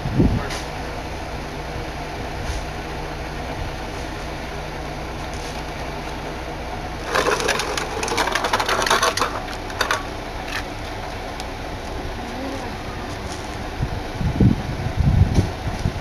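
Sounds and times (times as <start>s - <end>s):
diesel engine idling: 0.0s - 16.0s
loud crunching crackle: 7.0s - 10.7s.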